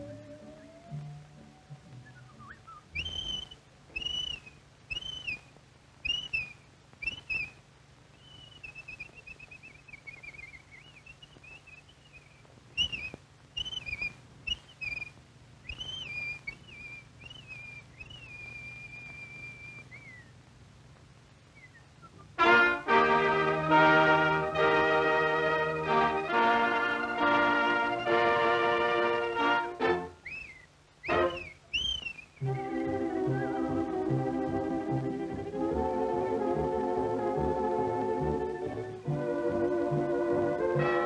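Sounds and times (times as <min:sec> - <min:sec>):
whistled bird calls: 0:00.0 - 0:20.4, 0:21.5 - 0:22.4, 0:30.1 - 0:34.0.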